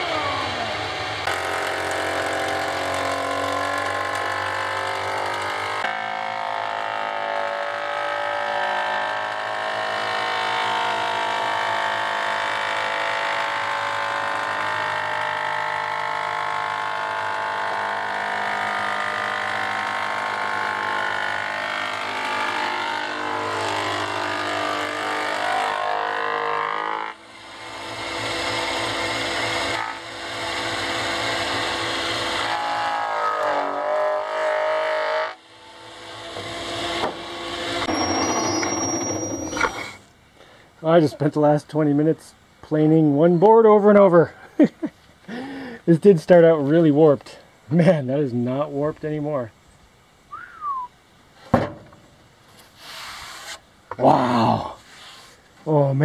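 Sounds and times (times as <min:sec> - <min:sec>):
board being planed: 0:00.0 - 0:40.0
thickness planer whining: 0:00.0 - 0:40.0.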